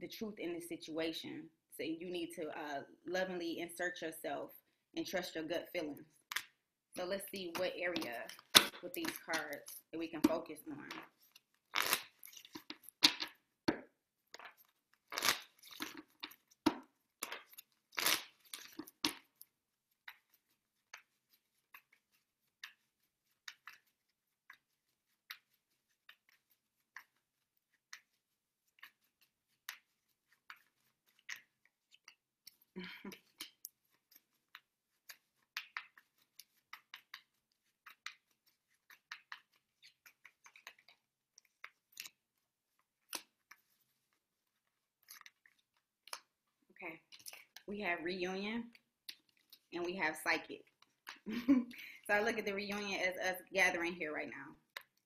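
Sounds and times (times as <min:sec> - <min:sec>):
cards being shuffled: 0:07.5 - 0:13.4, 0:14.4 - 0:46.3.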